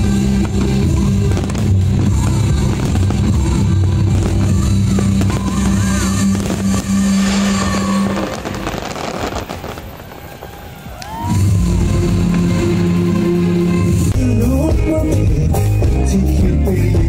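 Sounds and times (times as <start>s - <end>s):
fireworks shells bursting: 0.0s - 11.2s.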